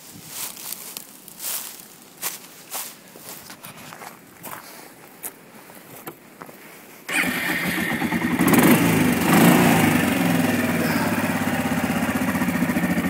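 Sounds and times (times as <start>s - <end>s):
single-cylinder engine revving and idling: 7.1s - 13.0s.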